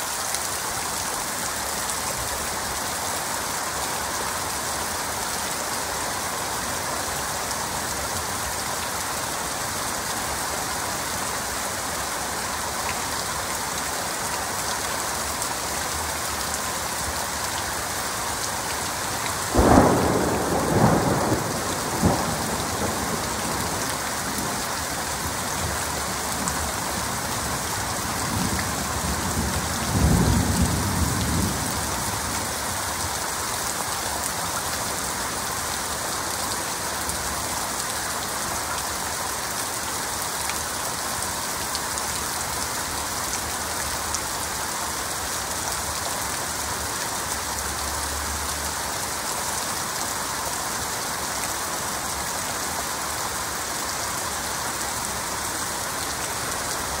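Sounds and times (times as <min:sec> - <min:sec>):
heavy rain falling: 0:00.0 - 0:57.0
thunder clap and rumble: 0:19.6 - 0:23.8.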